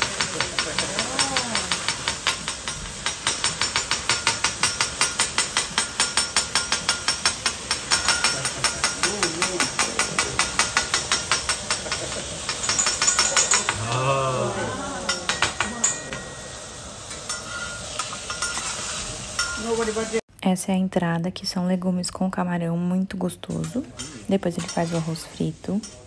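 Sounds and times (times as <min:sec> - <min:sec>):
metal spatulas clacking: 0:00.0 - 0:14.0, 0:15.0 - 0:16.3
sizzle of hot griddle: 0:00.0 - 0:20.2.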